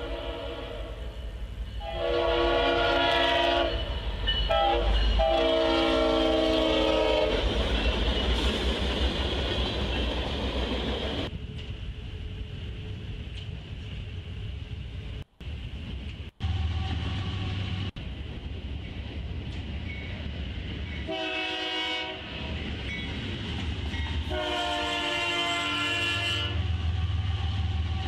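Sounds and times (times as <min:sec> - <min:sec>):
locomotive air horn blasts: 0:00.0 - 0:01.2, 0:01.8 - 0:03.9, 0:04.5 - 0:07.4, 0:21.1 - 0:22.4, 0:24.3 - 0:28.0
train rumbling and rattling past: 0:00.0 - 0:28.0.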